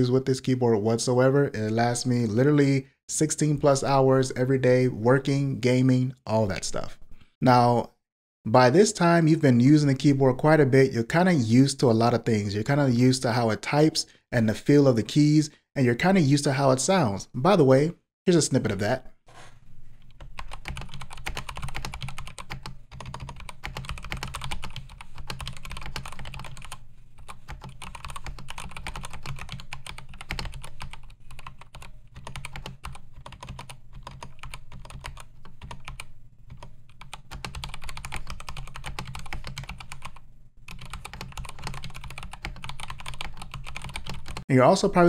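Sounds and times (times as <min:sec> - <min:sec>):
fast mechanical keyboard typing: 0:20.1 - 0:44.4.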